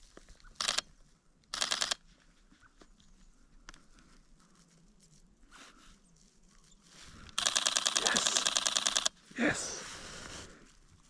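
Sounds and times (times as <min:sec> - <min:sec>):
faint small ticks: 0:00.1 - 0:05.2, 0:06.2 - 0:09.2
camera shutter burst: 0:00.6 - 0:00.8, 0:01.5 - 0:02.0, 0:07.4 - 0:09.2.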